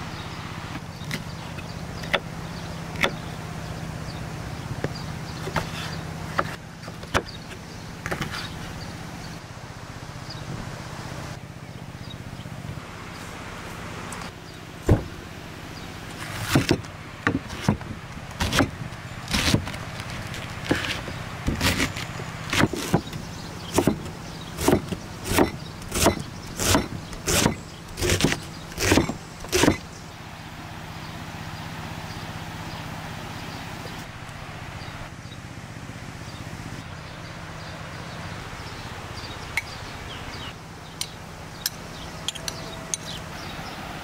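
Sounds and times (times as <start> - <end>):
knife chopping on wooden board: 16.4 - 18.7, 20.6 - 29.8.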